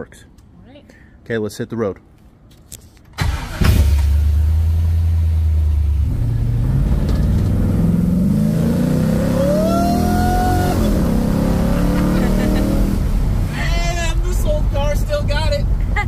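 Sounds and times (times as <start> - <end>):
car engine starting and revving: 3.2 - 13.7.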